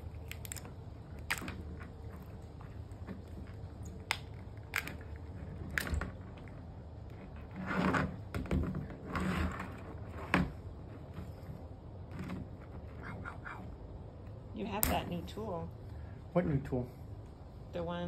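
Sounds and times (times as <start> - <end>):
lobster shell clicking and crackling: 0.0 - 6.6.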